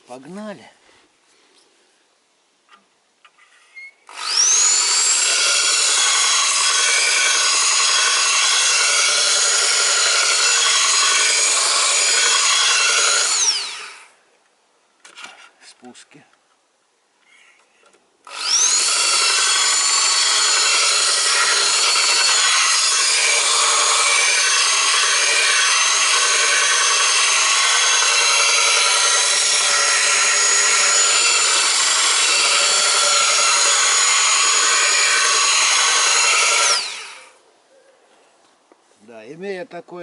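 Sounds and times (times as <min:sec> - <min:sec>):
belt file grinding steel: 0:04.2 - 0:13.8, 0:18.4 - 0:37.2.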